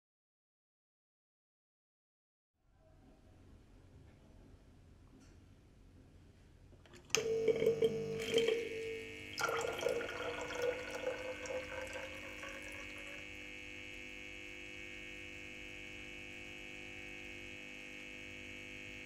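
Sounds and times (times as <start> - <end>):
pump buzzing: 6.9 - 19.0
water gurgling and splashing: 7.2 - 13.2.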